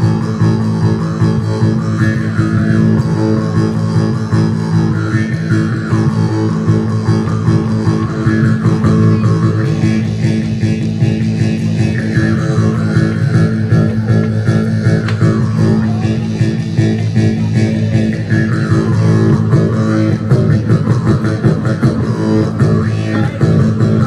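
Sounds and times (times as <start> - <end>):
jaw harp twanging drone: 0.0 - 24.0.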